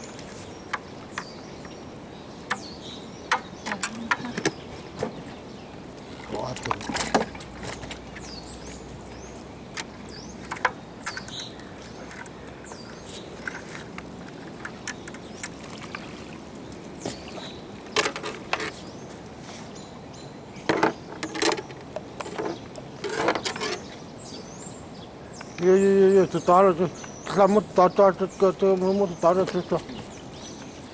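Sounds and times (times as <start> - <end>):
fishing gear clicks and knocks: 6.0 - 8.9, 9.7 - 17.2, 17.8 - 18.9, 20.7 - 23.8.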